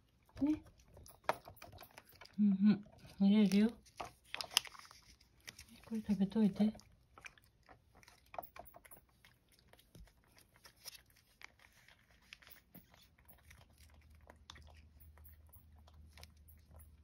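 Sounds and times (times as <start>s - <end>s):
plastic pouch clicks and crinkles: 3.4s - 6.1s.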